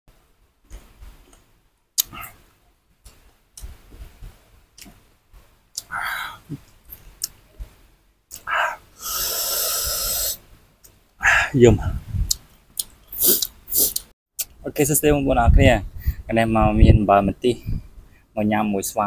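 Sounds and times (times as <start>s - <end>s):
clicking chewing sounds: 5.7s - 5.9s, 12.3s - 14.5s
breath hissing through lips: 8.4s - 10.4s, 13.1s - 14.0s.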